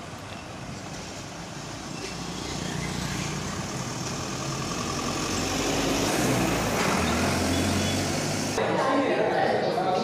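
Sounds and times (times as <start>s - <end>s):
street traffic: 0.0s - 10.0s
vehicle engine running: 1.5s - 8.6s.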